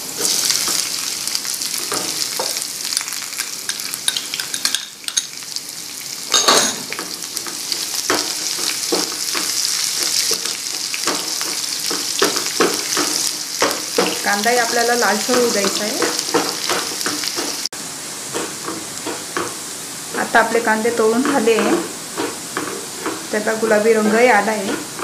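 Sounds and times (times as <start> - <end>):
onion sizzling in oil: 0.0 - 25.0
wooden spatula scraping pan: 18.3 - 25.0.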